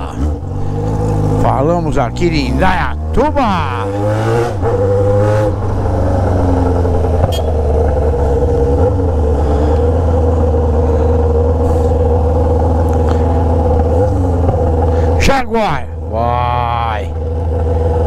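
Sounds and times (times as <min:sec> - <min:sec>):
motorcycle engine at low revs: 0:00.0 - 0:18.0.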